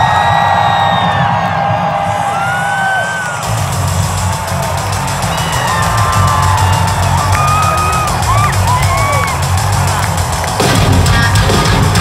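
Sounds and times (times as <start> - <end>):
heavy drums: 0.0 - 12.0
hard rock band: 3.4 - 12.0.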